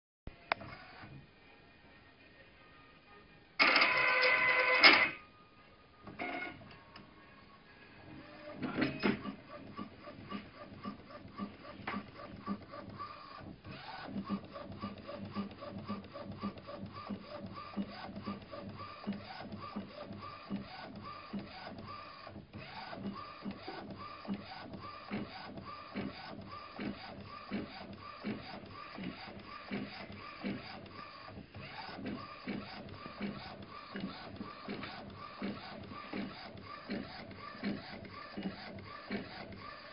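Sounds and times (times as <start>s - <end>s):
printing machine running: 3.6s - 5.2s, 8.1s - 39.9s.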